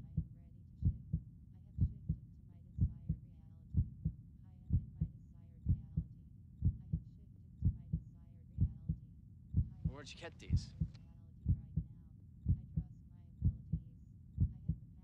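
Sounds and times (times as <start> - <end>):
heartbeat thumps: 0.0 - 1.2, 1.8 - 2.2, 2.8 - 3.2, 3.8 - 5.1, 5.7 - 7.0, 7.6 - 8.0, 8.6 - 9.0, 9.6 - 10.9, 11.5 - 12.8, 13.4 - 13.8, 14.4 - 14.8.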